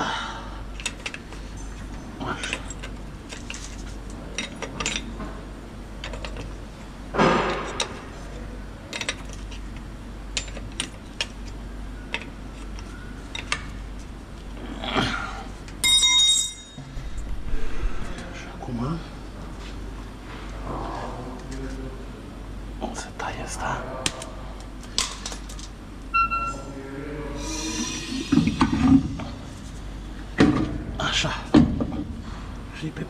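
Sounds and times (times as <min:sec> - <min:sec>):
metal tools clinking and tapping: 0:02.4 - 0:05.2, 0:15.8 - 0:16.8
short high-pitched squeal: 0:26.2 - 0:26.7.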